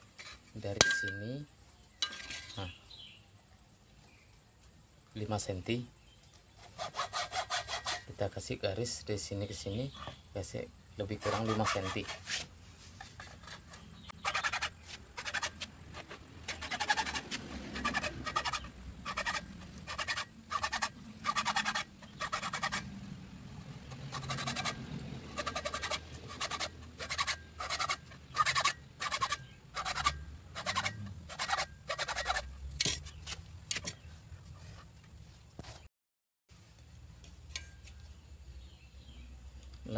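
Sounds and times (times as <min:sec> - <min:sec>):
hacksaw rasping through rod: 0:06.6 - 0:08.1, 0:11.2 - 0:12.4, 0:13.2 - 0:22.9, 0:23.9 - 0:33.1.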